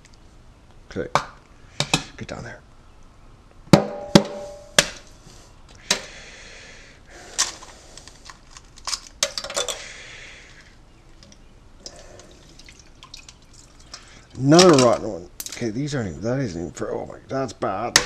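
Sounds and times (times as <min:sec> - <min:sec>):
eggshell cracking: 0:10.5 - 0:15.6.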